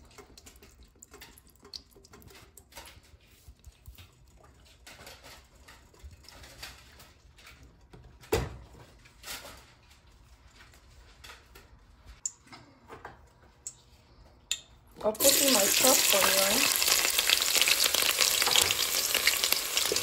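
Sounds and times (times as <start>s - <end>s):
kitchen items tapping and clicking: 17.6s - 20.0s.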